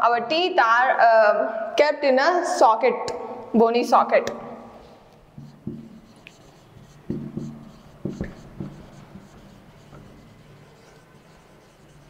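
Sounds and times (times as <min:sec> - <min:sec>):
marker pen squeaking on whiteboard: 0:05.3 - 0:12.0
pen knocking against board: 0:05.4 - 0:06.1, 0:07.0 - 0:09.3.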